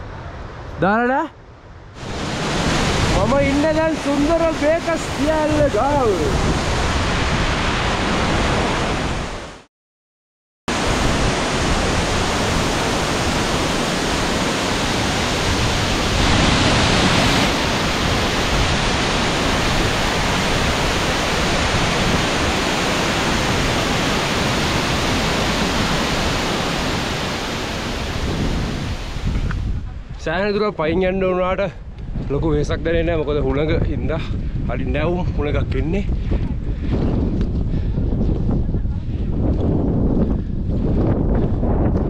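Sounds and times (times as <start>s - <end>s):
waterfall rushing: 2.0s - 9.5s, 10.7s - 29.3s.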